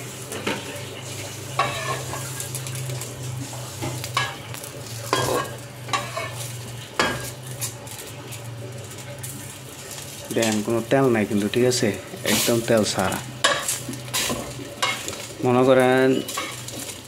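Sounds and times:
light sizzle: 0:00.0 - 0:17.0
metal spatula scraping wok: 0:01.5 - 0:02.4, 0:05.1 - 0:07.2, 0:16.0 - 0:17.0.

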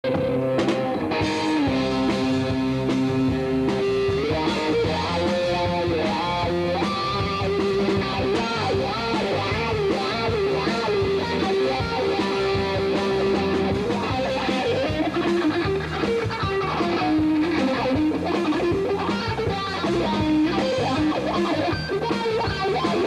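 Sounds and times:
drums: 0:00.0 - 0:23.0
electric guitar melody: 0:00.0 - 0:23.0.

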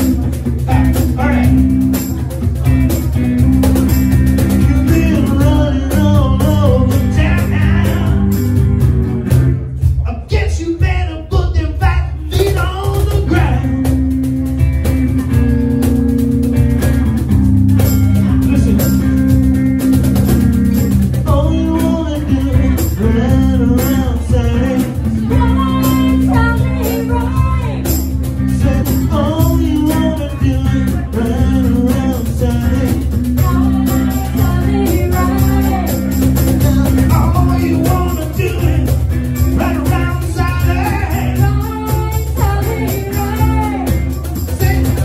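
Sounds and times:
cajon: 0:00.0 - 0:45.0
guitar: 0:00.0 - 0:45.0
man singing into a microphone: 0:04.5 - 0:08.6, 0:09.9 - 0:14.2, 0:21.1 - 0:45.0
woman singing: 0:23.8 - 0:28.0, 0:29.0 - 0:37.2, 0:41.2 - 0:44.6.

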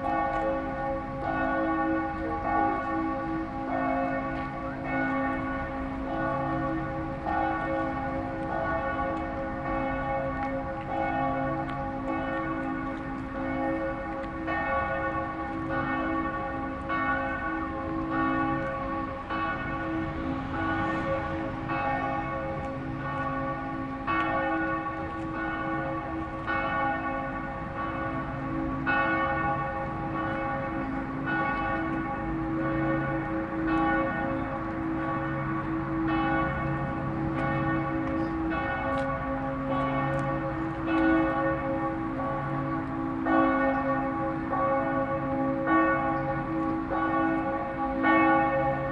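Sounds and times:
church bells pealing: 0:00.0 - 0:48.9.

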